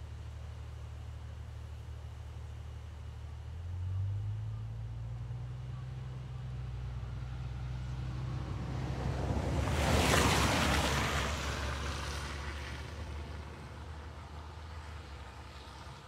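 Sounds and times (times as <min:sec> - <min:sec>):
vehicle passing on wet road: 0:07.1 - 0:16.0.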